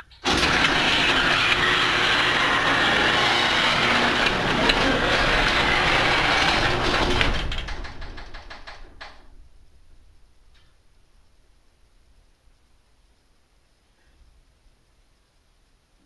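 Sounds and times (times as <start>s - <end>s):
garage door opener running: 0.0s - 9.5s
rapid clicks of opener stopping: 0.1s - 9.2s.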